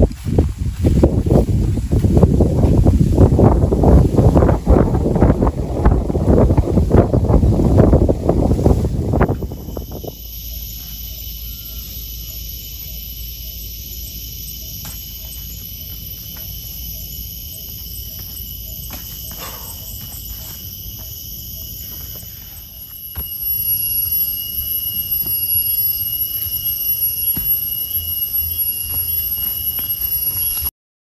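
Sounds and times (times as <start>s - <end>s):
wind rumble on microphone: 0.0s - 10.3s
high-pitched insect chorus: 0.0s - 30.7s.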